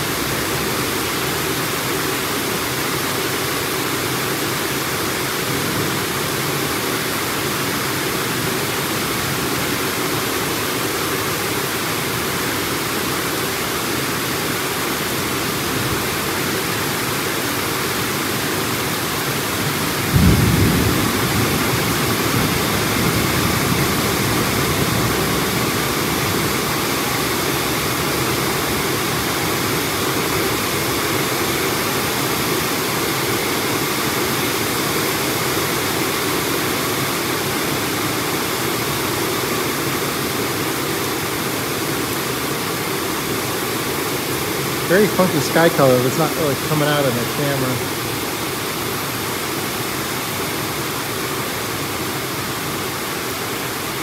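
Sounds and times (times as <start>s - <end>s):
heavy rain hissing: 0.0s - 54.0s
thunder clap rumbling: 20.0s - 26.5s.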